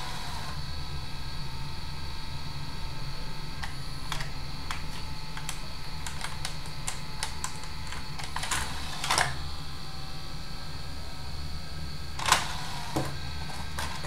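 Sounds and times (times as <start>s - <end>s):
steady low hum: 0.0s - 14.0s
disc mechanism clicking: 3.6s - 9.4s
scraping clicks: 3.6s - 9.4s, 12.2s - 14.0s.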